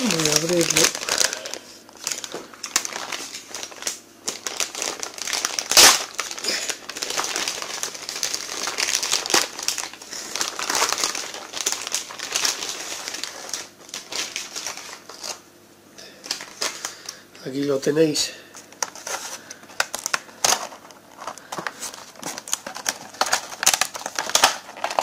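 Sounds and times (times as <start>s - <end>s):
plastic bag crinkling: 0.0s - 15.4s, 16.2s - 17.2s, 18.5s - 25.0s.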